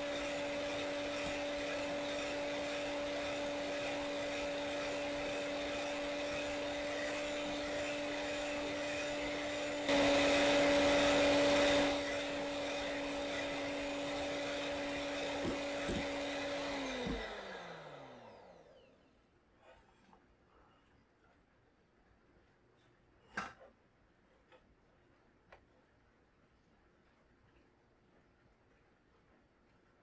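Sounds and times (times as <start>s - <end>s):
electric hand mixer humming: 0.0s - 18.9s.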